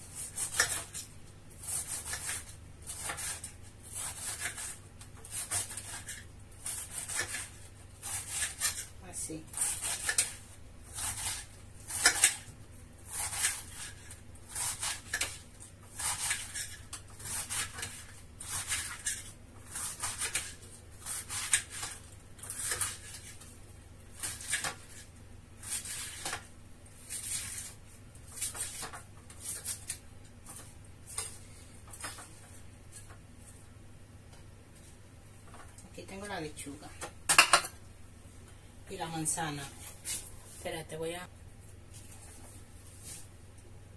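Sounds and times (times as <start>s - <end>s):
knife slicing lettuce: 0.0s - 23.5s, 24.1s - 32.3s.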